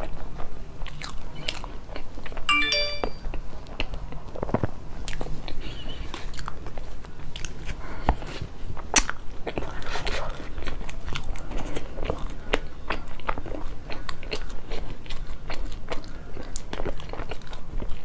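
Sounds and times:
chewing with crackles: 0.0s - 2.5s, 3.3s - 18.0s
brief squeaky tone: 2.5s - 3.2s.

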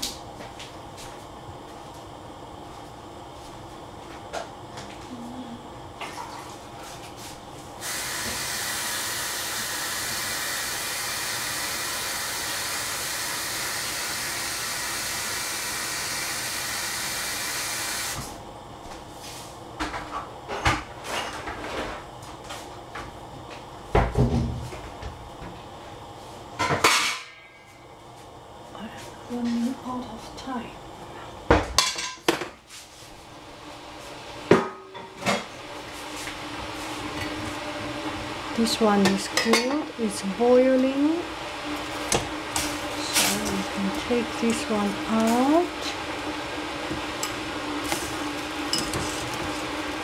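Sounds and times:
water running from tap: 7.8s - 18.2s.

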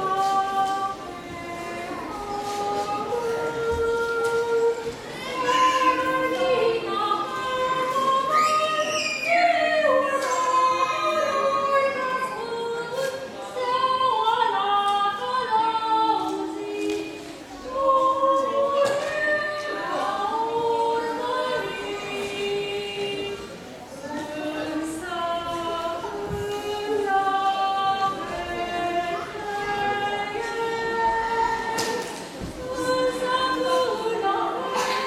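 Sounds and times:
two women singing unaccompanied: 0.0s - 35.0s.

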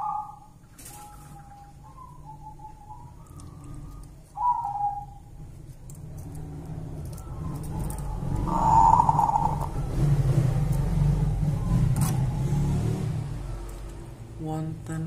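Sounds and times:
dove cooing: 0.0s - 5.4s, 6.2s - 12.2s.

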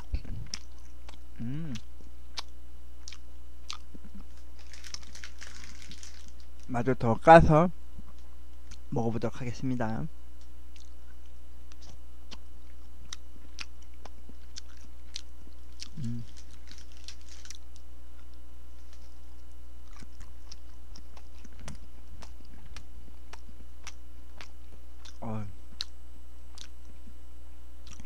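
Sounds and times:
person humming: 1.4s - 1.9s, 15.9s - 16.4s.

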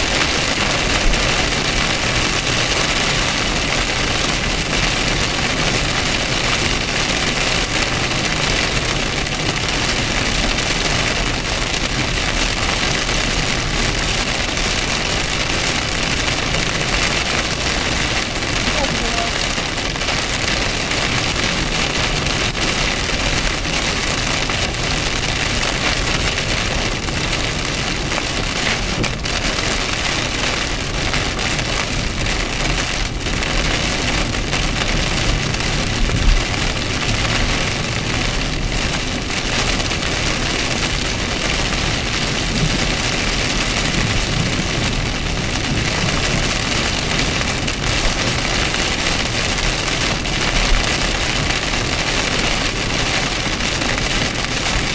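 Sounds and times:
heavy rain on a car: 0.0s - 54.9s
tyres rumbling on wet road: 0.0s - 54.9s.

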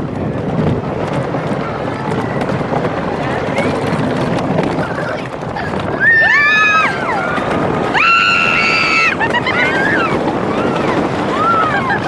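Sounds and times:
roller coaster train rumbling: 0.0s - 12.0s
riders screaming: 5.9s - 12.0s.

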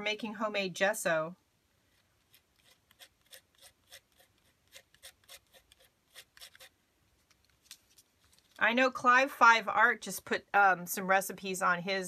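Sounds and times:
palette knife scraping: 1.9s - 6.8s.

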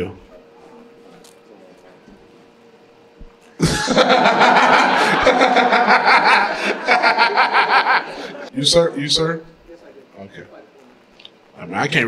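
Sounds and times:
audience laughing loudly: 3.6s - 8.5s.

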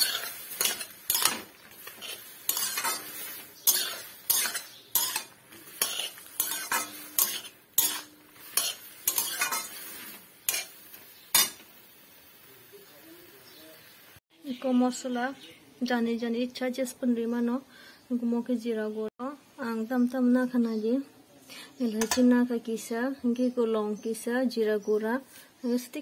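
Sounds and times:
metal spatula scraping a pan: 0.0s - 11.7s.

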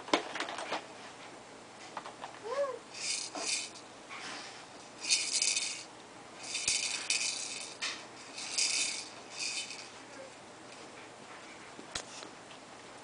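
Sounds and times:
baby shaking rattle toy: 2.9s - 3.8s, 5.0s - 10.0s.

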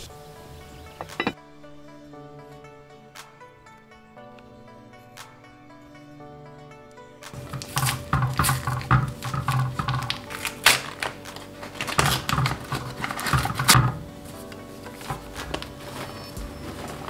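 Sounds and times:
paper packet crinkling and rustling: 7.4s - 17.0s.

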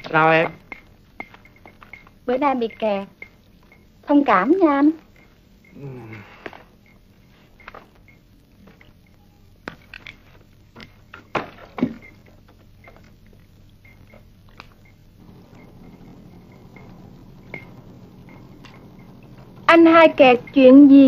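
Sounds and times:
faint high chirps: 9.0s - 9.6s
low hum: 12.0s - 21.0s.

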